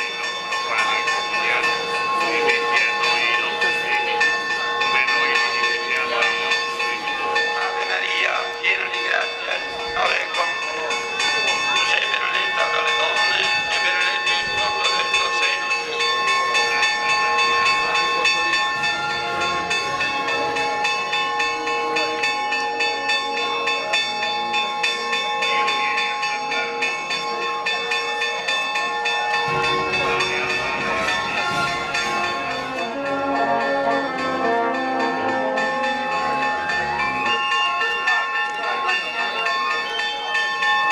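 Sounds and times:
church bells pealing: 0:00.0 - 0:40.9
brass band low notes: 0:29.5 - 0:37.9.

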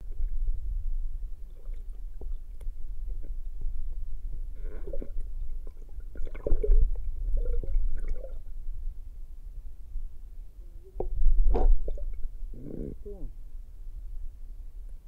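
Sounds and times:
underwater low rumble: 0:00.0 - 0:15.0
bubbly gurgles: 0:04.5 - 0:08.5, 0:11.4 - 0:13.1.

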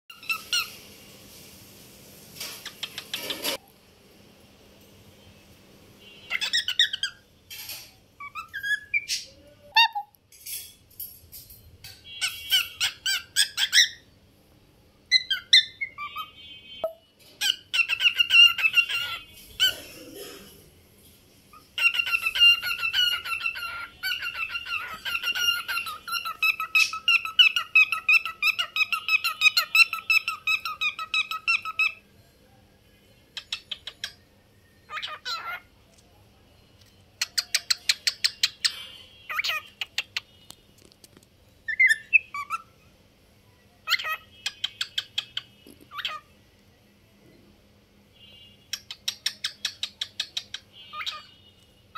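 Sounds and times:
cockatiel whistling and chirping: 0:00.1 - 0:00.8, 0:06.3 - 0:07.2, 0:08.2 - 0:10.0, 0:12.2 - 0:14.0, 0:15.1 - 0:16.3, 0:17.4 - 0:19.2, 0:21.6 - 0:32.0, 0:34.8 - 0:35.6, 0:37.2 - 0:40.2, 0:41.7 - 0:42.7, 0:43.8 - 0:46.2, 0:48.7 - 0:51.3
cockatiel warbling: 0:06.3 - 0:07.2, 0:17.4 - 0:19.9, 0:21.6 - 0:32.0, 0:34.9 - 0:35.7, 0:39.3 - 0:40.1, 0:41.7 - 0:42.7, 0:43.8 - 0:46.3, 0:49.2 - 0:51.3.

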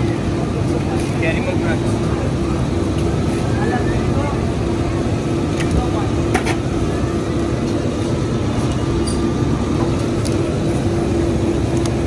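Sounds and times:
machine hum with low rumble: 0:00.0 - 0:12.0.

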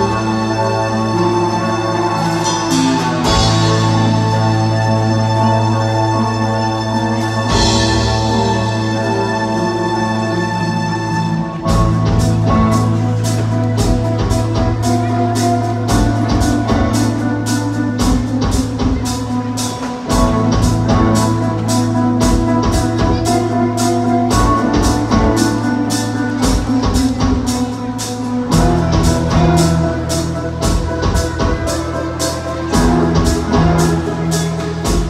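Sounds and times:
show music with quick beat: 0:01.2 - 0:05.3, 0:11.6 - 0:35.0.

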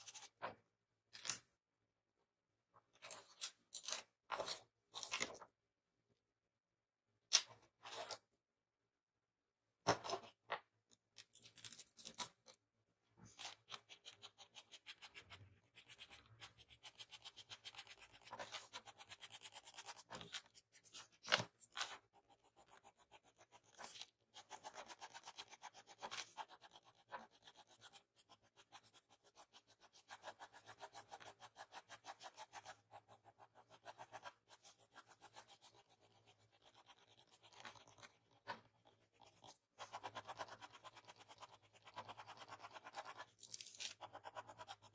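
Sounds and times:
pencil scratching on paper: 0:00.0 - 0:00.4, 0:13.2 - 0:44.9.

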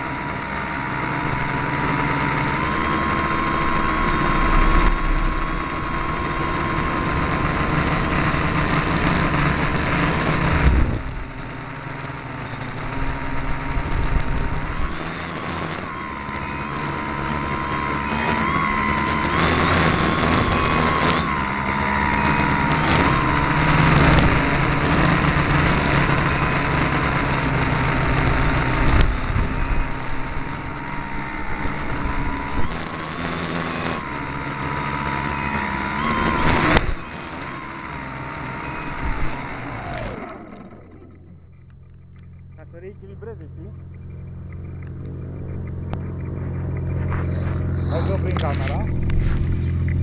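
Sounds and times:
drone motors whining: 0:00.0 - 0:50.0
short high beeps: 0:00.4 - 0:07.6, 0:13.1 - 0:39.4
rushing air: 0:45.0 - 0:50.0.

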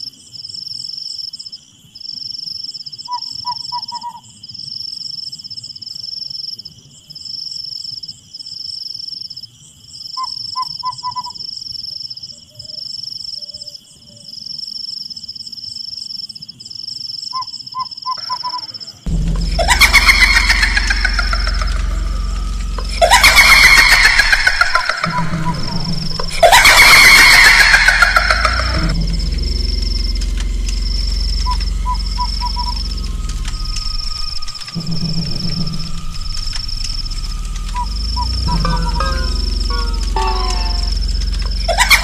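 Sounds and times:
insects trilling: 0:00.0 - 0:42.0
bird calling harsh notes: 0:17.4 - 0:42.0.

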